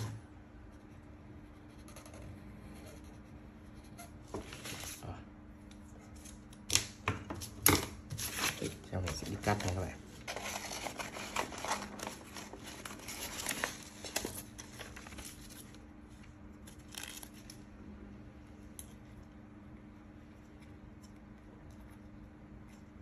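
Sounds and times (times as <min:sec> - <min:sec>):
paper rustling and crinkling: 0:04.3 - 0:05.1, 0:07.4 - 0:17.6.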